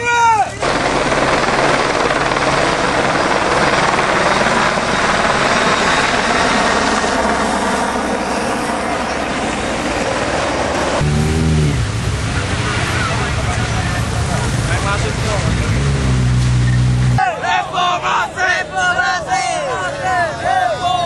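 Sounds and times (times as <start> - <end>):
helicopter flying overhead: 0.6 - 11.3.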